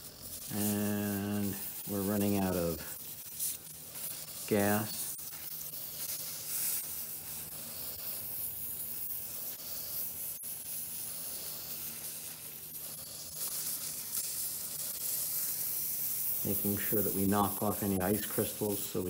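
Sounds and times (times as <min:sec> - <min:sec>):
cryo pen gas hissing: 0:00.0 - 0:19.0.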